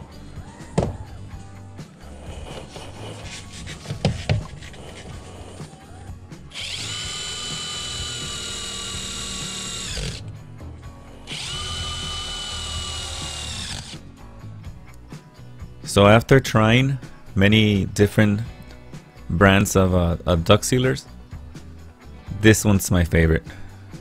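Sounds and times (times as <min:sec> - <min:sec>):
cordless drill whining: 0:05.1 - 0:10.3, 0:11.2 - 0:14.0.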